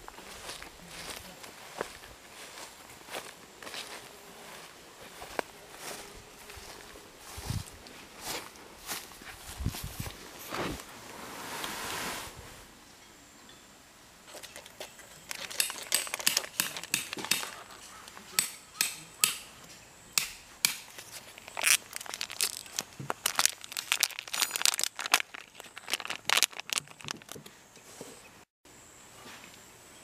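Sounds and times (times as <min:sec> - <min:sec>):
crinkling crackling by hand: 0:14.3 - 0:18.3, 0:20.8 - 0:27.5.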